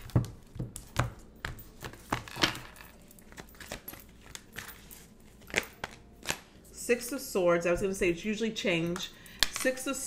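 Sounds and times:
cards being shuffled: 0.0 - 6.6.

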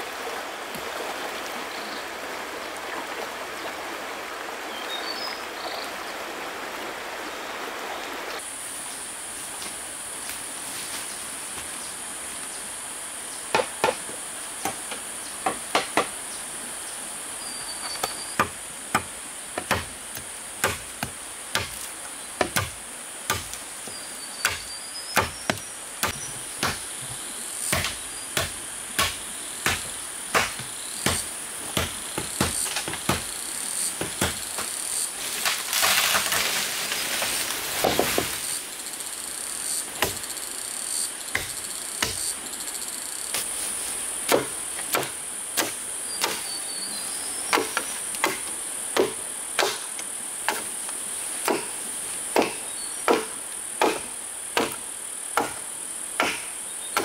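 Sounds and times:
insects buzzing: 0.0 - 57.0
tool striking wood: 13.5 - 16.1, 41.3 - 42.3, 52.4 - 54.8, 55.4 - 55.6.

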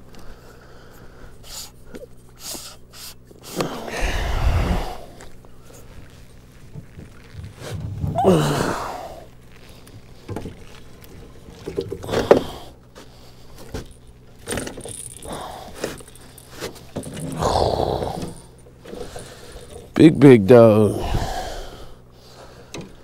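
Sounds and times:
heavy breathing: 0.2 - 6.0, 15.0 - 19.9, 20.9 - 23.0
person grunting with effort: 3.6 - 5.2, 8.0 - 9.3, 17.2 - 18.5, 20.9 - 21.8
person groaning: 3.8 - 5.2, 8.1 - 9.3, 17.3 - 18.5, 20.8 - 21.8.

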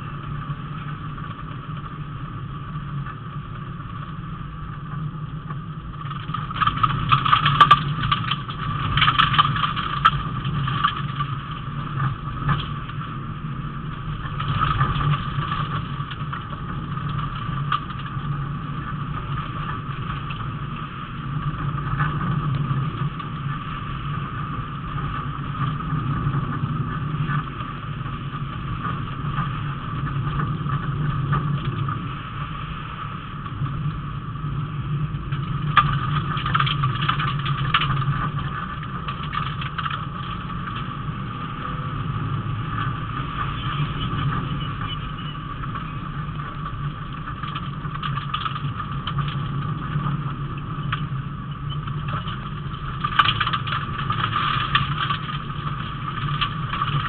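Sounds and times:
rally car engine running hard: 0.0 - 57.0
tyre and road noise: 0.0 - 57.0
sharp knocks and rattles: 6.0 - 13.1, 35.2 - 41.2, 42.5 - 57.0.

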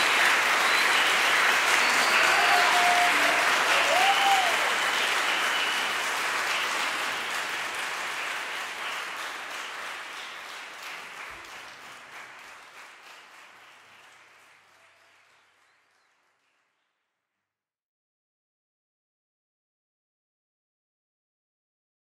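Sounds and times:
audience cheering: 0.0 - 7.4
audience applauding: 0.0 - 16.6.

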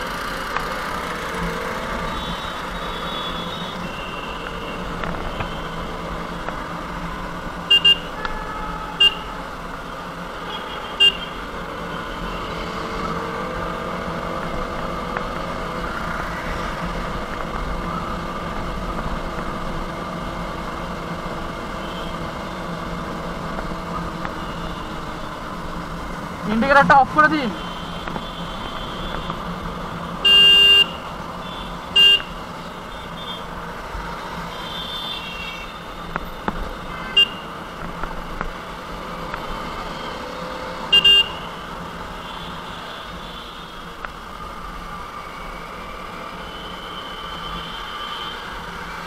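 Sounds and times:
road noise: 0.0 - 49.0
vehicle horn toots: 7.7 - 9.3, 30.2 - 32.4, 36.9 - 37.5, 40.9 - 41.6.

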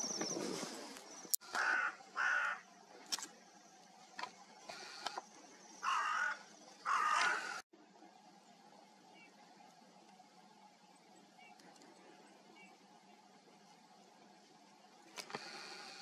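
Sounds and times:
crow cawing: 1.4 - 2.7, 5.8 - 7.6.

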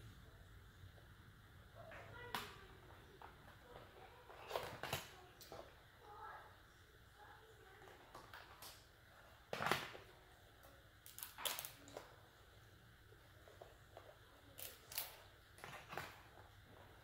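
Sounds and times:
crab shell cracking: 11.0 - 12.0.

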